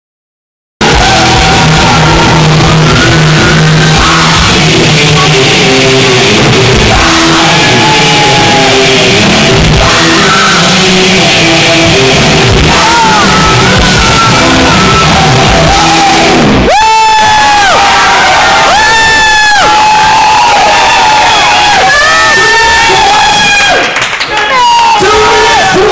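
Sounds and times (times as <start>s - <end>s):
live rock band playing: 0.8s - 16.7s
person singing and shouting: 0.8s - 17.1s
electric guitar: 0.8s - 23.8s.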